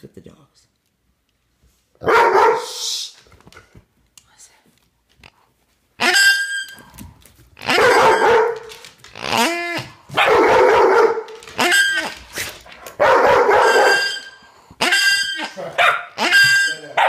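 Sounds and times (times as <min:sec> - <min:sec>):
puppies barking and yipping: 0:07.6 - 0:09.5, 0:13.0 - 0:17.0
puppy yelping: 0:07.6 - 0:12.2, 0:13.0 - 0:17.0.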